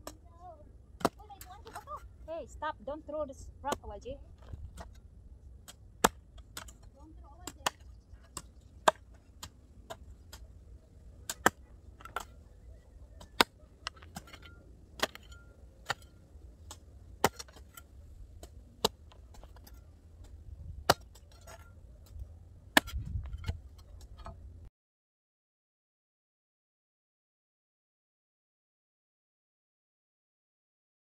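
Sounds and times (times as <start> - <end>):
digging tool striking soil and stones: 1.0 - 2.2, 3.6 - 5.0, 5.6 - 12.5, 13.1 - 24.4.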